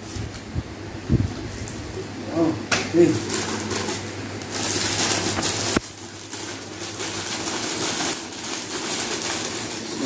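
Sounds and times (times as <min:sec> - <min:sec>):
paper rustling and crinkling: 0:02.9 - 0:10.0.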